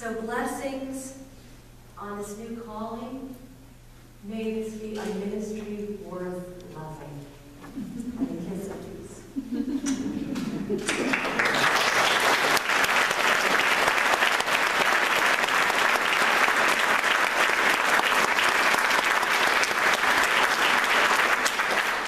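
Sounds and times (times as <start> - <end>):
crowd applauding: 10.7 - 22.0.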